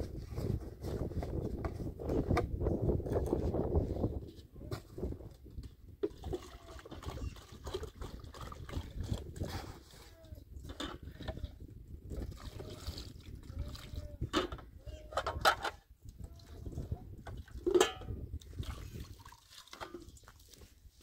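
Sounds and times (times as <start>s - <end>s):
plastic jugs and bowls clattering: 4.7s - 15.8s, 16.5s - 20.7s
liquid pouring and trickling: 6.0s - 9.5s, 10.7s - 14.3s, 16.0s - 20.8s.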